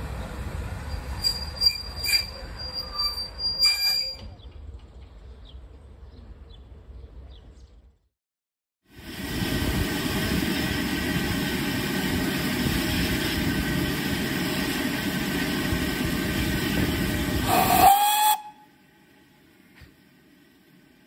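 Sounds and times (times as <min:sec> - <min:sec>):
steam locomotive hissing: 0:08.9 - 0:18.9
steam whistle blast: 0:17.4 - 0:18.8.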